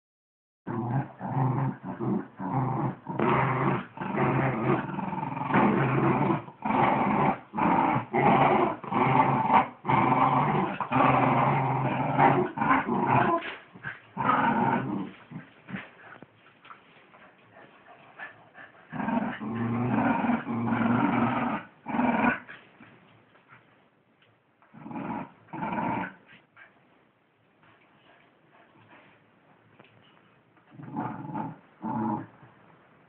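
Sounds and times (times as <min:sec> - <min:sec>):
dogs growling in play: 0:00.7 - 0:16.3, 0:17.3 - 0:22.7, 0:24.7 - 0:26.8, 0:30.7 - 0:32.5.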